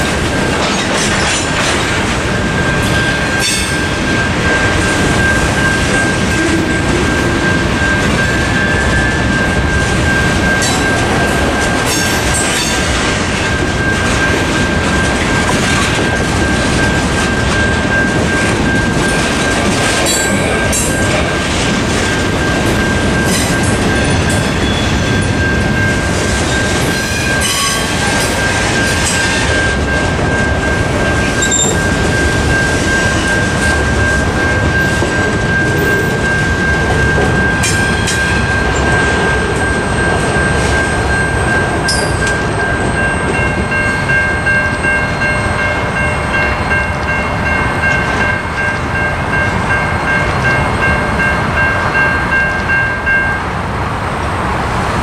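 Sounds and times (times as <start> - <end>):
crossing bell ringing: 0.0 - 53.6
freight cars rumbling and clattering: 0.0 - 55.0
wheel squeals: 31.3 - 31.9.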